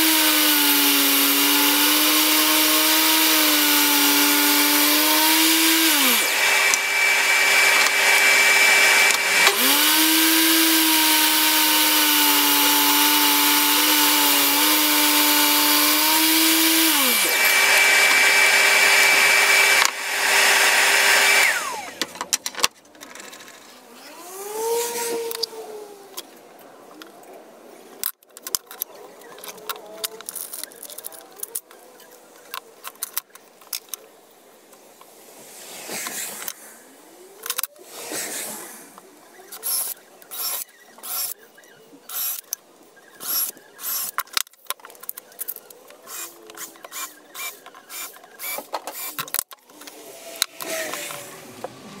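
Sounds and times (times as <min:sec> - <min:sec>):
cordless drill into wood: 0:00.0 - 0:22.0, 0:39.6 - 0:41.4, 0:42.1 - 0:42.5, 0:43.2 - 0:44.3, 0:46.0 - 0:49.5, 0:50.3 - 0:51.4.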